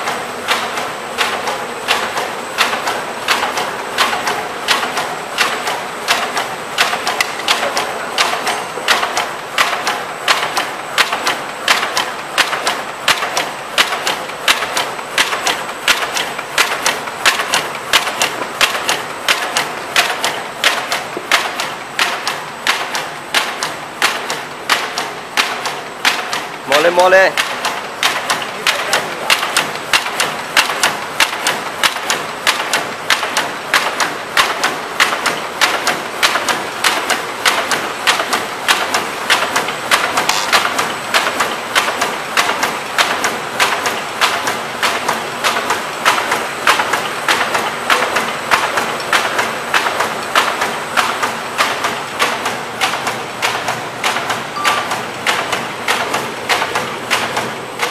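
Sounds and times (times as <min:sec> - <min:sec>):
machine clacking: 0:00.0 - 0:57.9.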